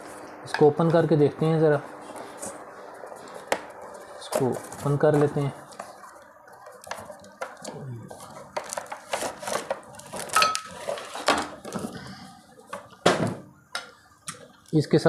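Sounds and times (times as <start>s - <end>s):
packaging rustling and crinkling: 2.0s - 13.0s.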